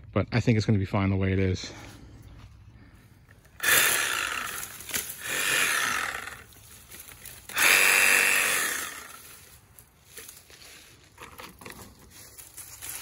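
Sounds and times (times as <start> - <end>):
pruning chainsaw cutting stems: 3.2 - 13.0.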